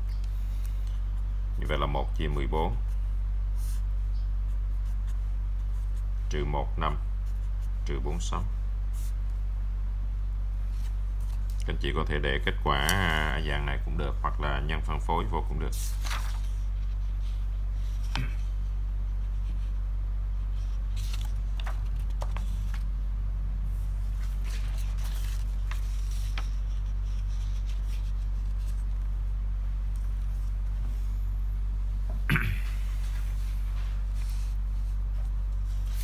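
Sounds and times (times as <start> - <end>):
low electrical hum: 0.0 - 36.0
paper sheets rustling: 10.7 - 11.6, 15.3 - 18.6, 20.4 - 23.0, 23.7 - 29.1, 32.9 - 36.0.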